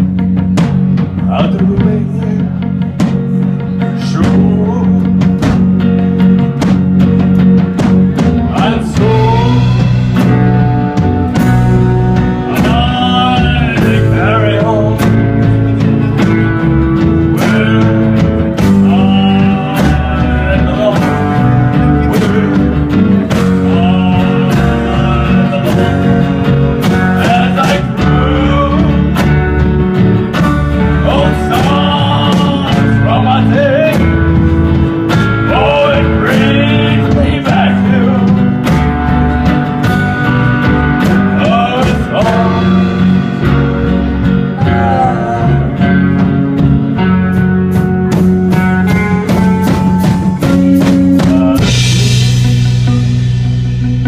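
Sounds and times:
bass guitar: 0:00.0 - 0:54.0
drum kit: 0:00.0 - 0:54.0
electric guitars: 0:00.0 - 0:54.0
man singing: 0:01.1 - 0:05.6, 0:08.4 - 0:10.3, 0:12.2 - 0:29.6, 0:30.4 - 0:38.9, 0:40.9 - 0:43.5, 0:44.4 - 0:46.5, 0:50.8 - 0:53.0.

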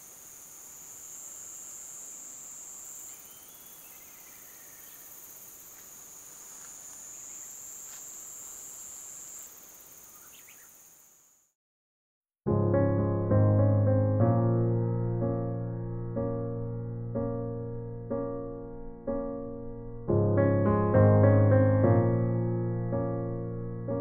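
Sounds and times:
insects trilling: 0:00.0 - 0:11.5
faint bird chirps: 0:02.1 - 0:05.2, 0:08.9 - 0:11.0.

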